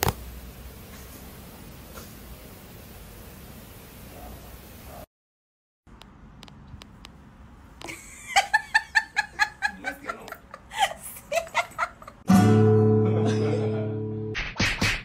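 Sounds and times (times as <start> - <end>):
high-pitched giggling laughter: 7.8 - 12.3
acoustic guitar strumming: 12.3 - 14.4.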